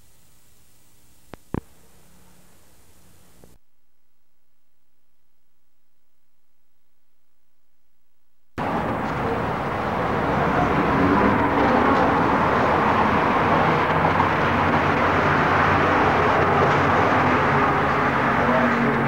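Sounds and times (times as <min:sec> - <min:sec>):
rumbling din of echoing hall: 0:08.6 - 0:19.0.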